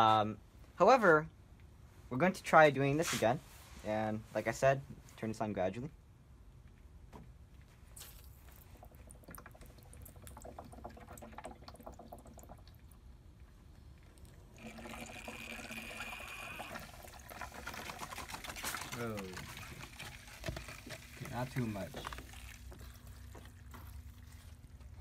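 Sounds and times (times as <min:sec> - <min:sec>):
water pouring through hose: 0:08.0 - 0:25.0.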